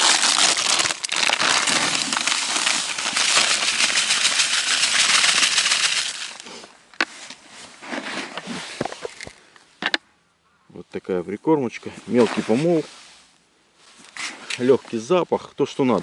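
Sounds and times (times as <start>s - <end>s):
groundbait pouring into bucket: 0.0s - 6.4s
plastic packet crinkling: 0.0s - 6.5s.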